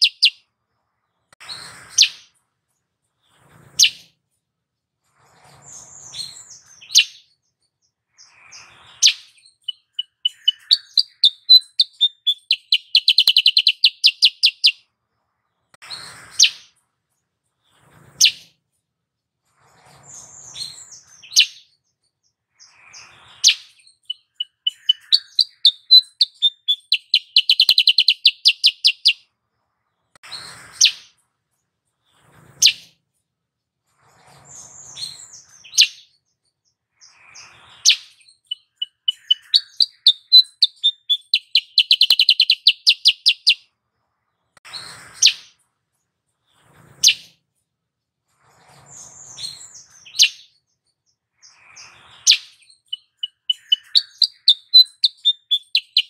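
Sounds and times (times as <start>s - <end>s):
bulbul calling: 0.0s - 0.4s, 9.0s - 14.8s, 24.0s - 29.2s, 37.9s - 43.6s, 52.3s - 56.0s.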